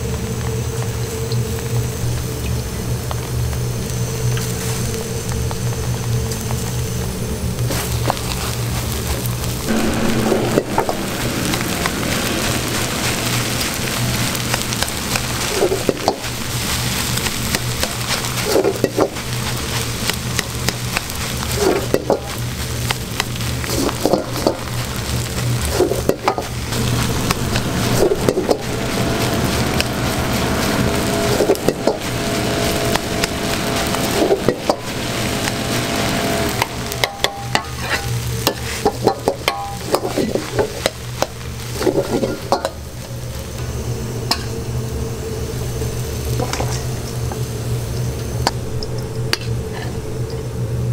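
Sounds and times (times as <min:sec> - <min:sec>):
rice sizzling in a wok: 0:00.0 - 0:50.9
ladle scraping and clanking wok: 0:09.7 - 0:22.5, 0:23.5 - 0:42.9.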